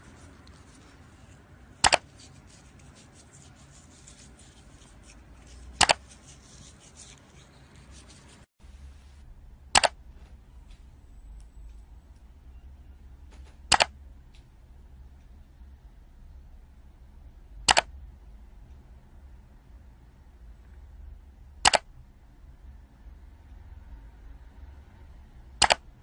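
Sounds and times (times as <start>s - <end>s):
faint background noise: 0.0s - 26.0s
computer mouse double click: 9.8s - 10.0s, 13.7s - 13.9s, 17.7s - 17.9s, 21.6s - 21.8s, 25.6s - 25.8s.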